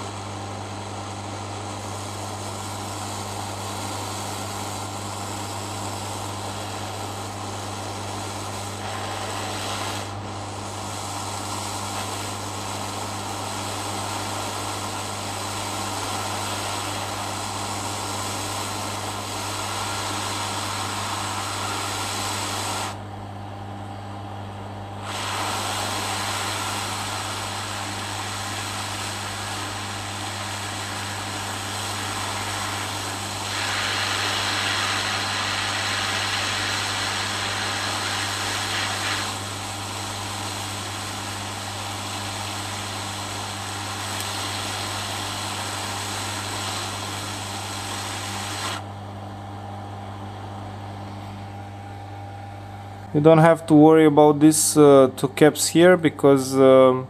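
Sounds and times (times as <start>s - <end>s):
hot air blower hissing: 0.0s - 57.0s.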